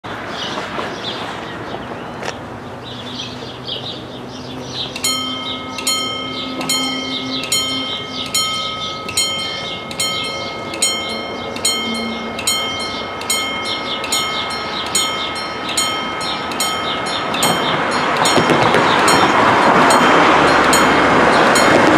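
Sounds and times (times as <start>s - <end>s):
road traffic noise: 0.0s - 21.9s
level crossing bells clanging: 4.8s - 21.9s.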